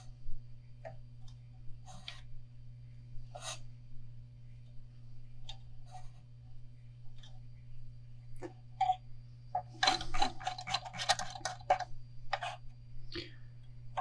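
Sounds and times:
thread ticks and scratches: 8.4s - 12.8s.

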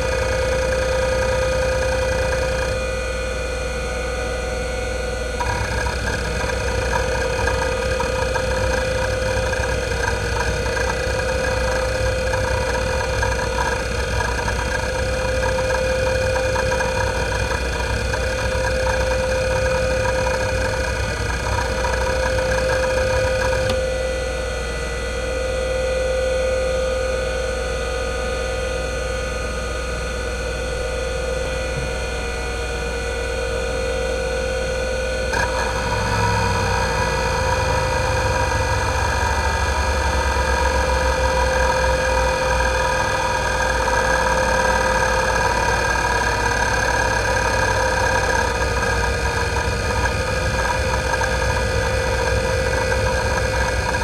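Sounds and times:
hard drive spindle hum: 0.0s - 3.1s, 5.2s - 24.2s, 30.5s - 32.4s, 35.3s - 54.0s
hard drive heads seeking: 5.4s - 23.8s, 43.8s - 54.0s.

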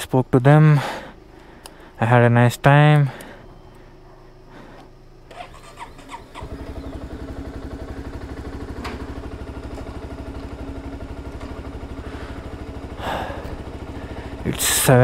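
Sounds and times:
motorcycle engine idling: 0.6s - 15.0s
starter clicks: 1.4s - 2.0s.

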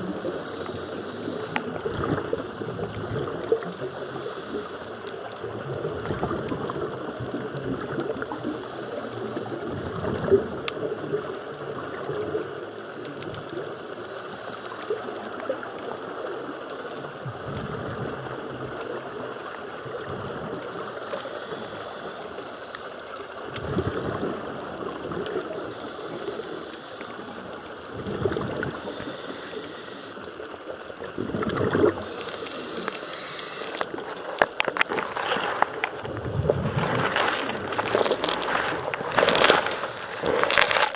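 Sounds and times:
scuba regulator breathing: 0.0s - 5.3s, 8.4s - 9.8s, 13.1s - 17.2s, 20.8s - 24.4s, 25.3s - 27.6s, 28.6s - 30.6s, 31.6s - 40.9s.

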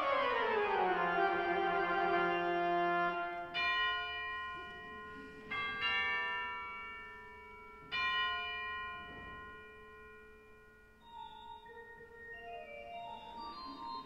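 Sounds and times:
pipe organ chords: 0.0s - 3.6s.

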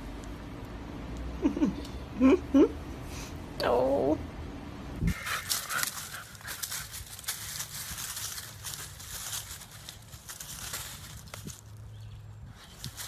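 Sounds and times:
leaves crackling underfoot: 5.1s - 13.0s.

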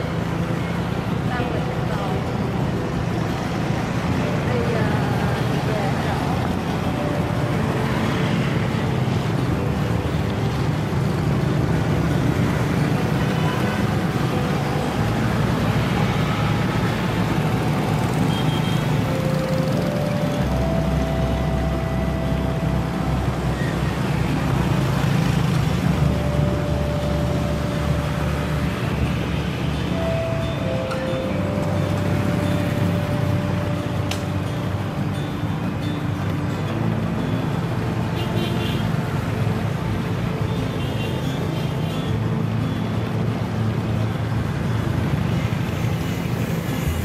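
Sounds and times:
road traffic noise: 0.0s - 47.0s.

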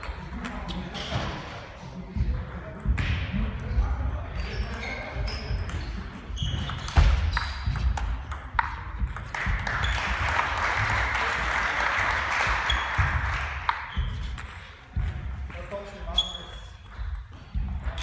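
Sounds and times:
table tennis ball hits: 6.6s - 15.7s.

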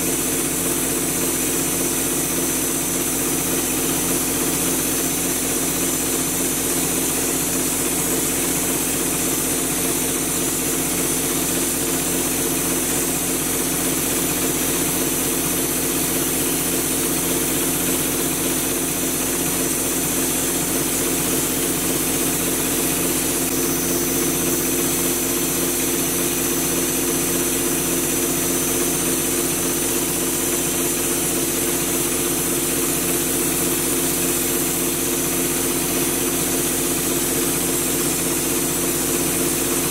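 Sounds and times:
air compressor humming: 0.0s - 39.9s
spray gun air hiss: 16.2s - 32.7s.

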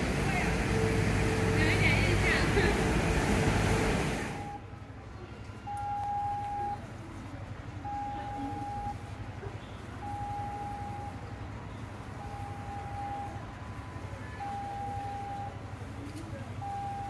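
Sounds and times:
loud rushing noise: 0.0s - 4.5s.

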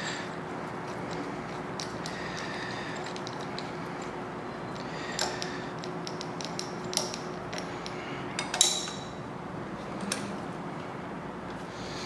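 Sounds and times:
metal tool clicking and clinking: 4.8s - 9.0s.

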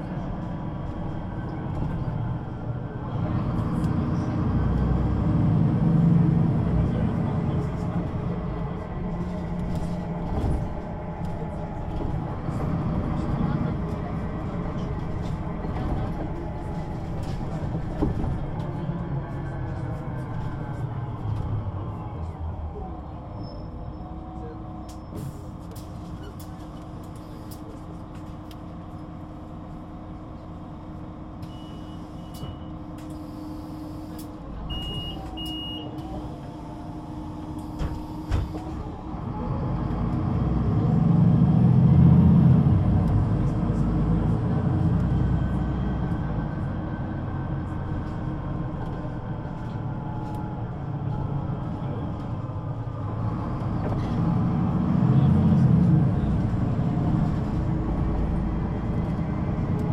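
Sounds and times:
bus diesel engine running: 0.0s - 59.9s
short beeping signals: 34.7s - 36.0s.

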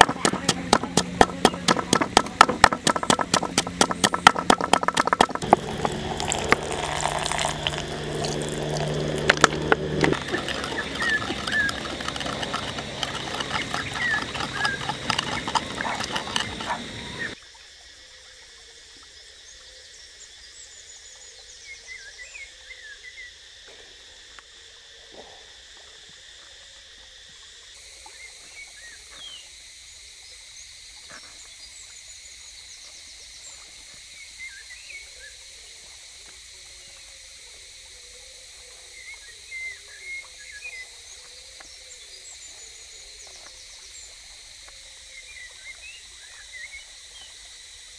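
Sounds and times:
forest ambience: 0.0s - 17.4s
pestle pounding in mortar: 0.0s - 17.4s.

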